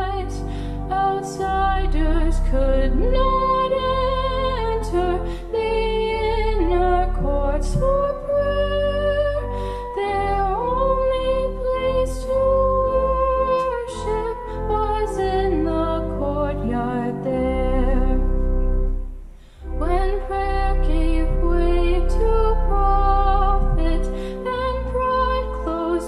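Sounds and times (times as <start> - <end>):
woman singing a hymn: 0.0 - 18.4, 19.7 - 26.0.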